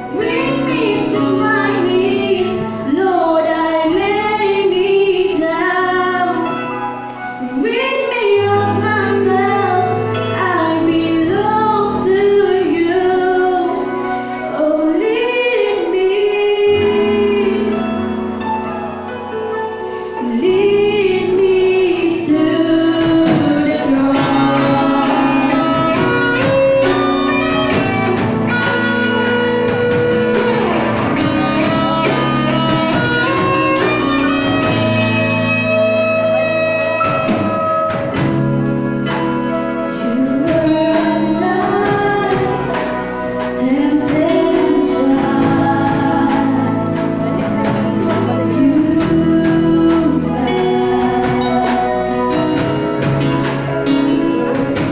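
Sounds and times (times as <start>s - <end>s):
women singing into microphones: 0.0s - 6.7s, 7.4s - 18.2s, 20.2s - 27.0s, 39.9s - 54.9s
electric keyboard: 0.0s - 54.9s
drum kit: 14.9s - 54.9s.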